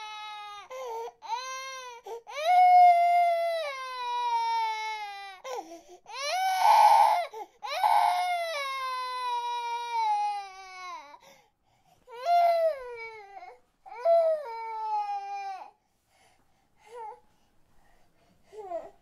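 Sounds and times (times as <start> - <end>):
baby crying: 0.0 - 11.2, 12.1 - 15.8.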